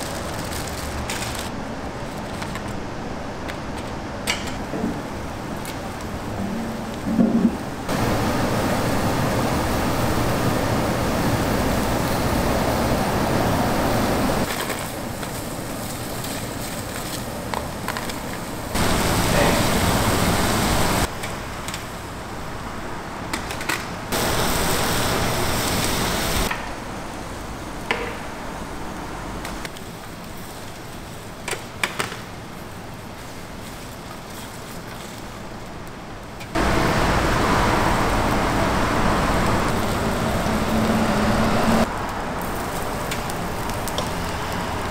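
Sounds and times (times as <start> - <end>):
shellfish sizzling on a grill: 14.5 - 20.8, 42.4 - 44.8.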